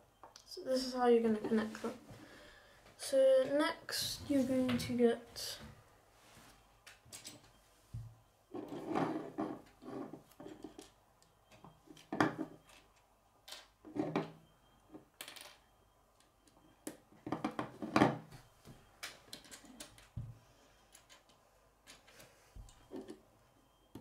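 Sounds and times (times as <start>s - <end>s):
plastic pieces clicking and clattering: 19.0s - 20.1s, 20.9s - 22.2s.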